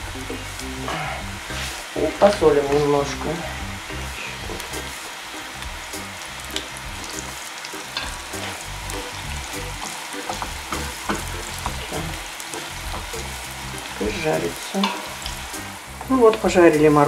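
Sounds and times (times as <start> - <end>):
carrots sizzling in hot oil: 0.0 - 17.0
spatula clicking and scraping pan: 6.5 - 9.2, 9.8 - 13.4, 14.8 - 15.4.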